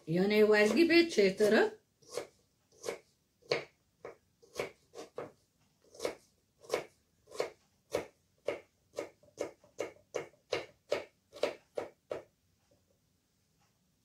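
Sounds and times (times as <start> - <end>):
knife chopping on cutting board: 0.6 - 12.3.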